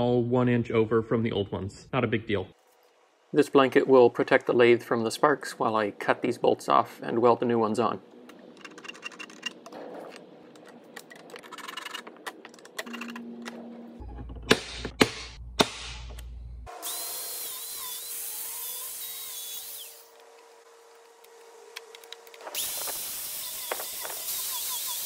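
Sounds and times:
centre punch snapping on steel: 0:14.5 - 0:16.3
angle grinder cutting steel rods: 0:16.7 - 0:20.2, 0:22.5 - 0:25.0.

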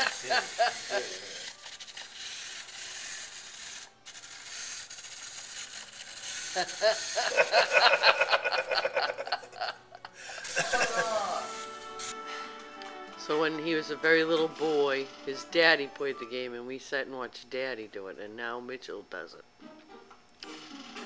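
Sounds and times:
clockwork toy motor whirring: 0:00.0 - 0:09.4, 0:10.3 - 0:12.2.

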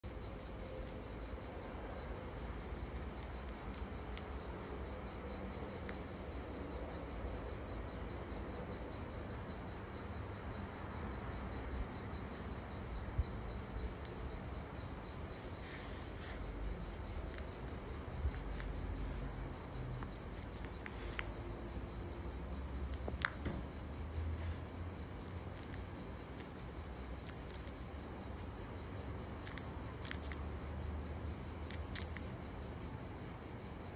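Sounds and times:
crickets chirping: 0:00.0 - 0:33.9.

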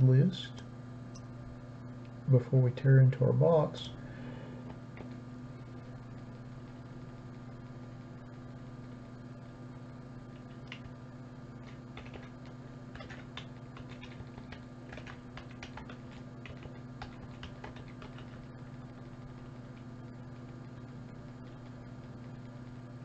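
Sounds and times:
low electrical hum: 0:00.0 - 0:23.0
computer mouse clicks: 0:10.4 - 0:10.9, 0:11.6 - 0:18.4.

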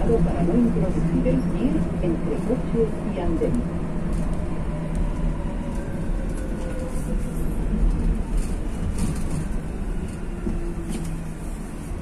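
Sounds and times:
train rumbling in tunnel: 0:00.0 - 0:12.0
wheels clicking and squeaking on rails: 0:05.6 - 0:12.0.

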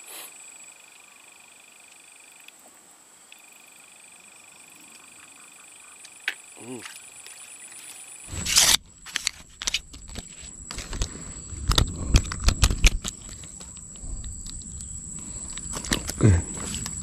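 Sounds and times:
faint high whine: 0:08.2 - 0:17.0
knocks and rustling: 0:08.3 - 0:17.0
loud scrape: 0:08.3 - 0:17.0.

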